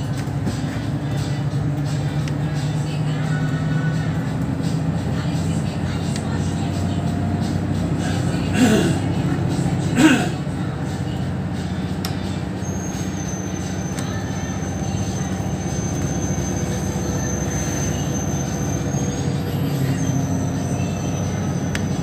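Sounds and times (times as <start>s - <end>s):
bus engine humming: 0.0s - 22.0s
road noise: 0.0s - 22.0s.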